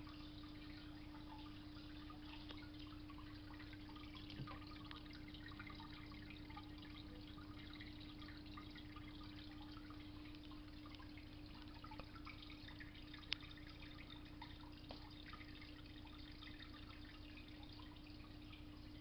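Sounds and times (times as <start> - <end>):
water dripping and trickling: 0.0 - 19.0
small ticks: 0.2 - 3.0, 10.2 - 15.5.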